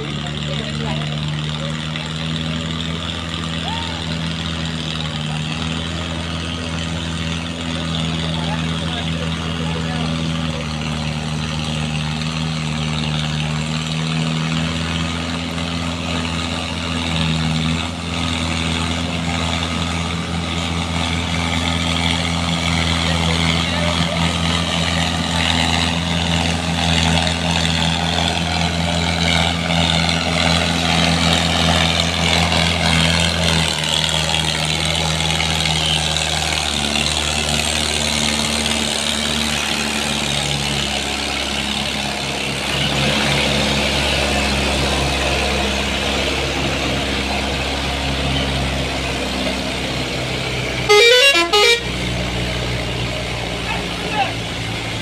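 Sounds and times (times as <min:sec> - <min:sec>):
diesel tractor engines: 0:00.0 - 0:55.0
vehicle horn warbling: 0:50.9 - 0:52.1.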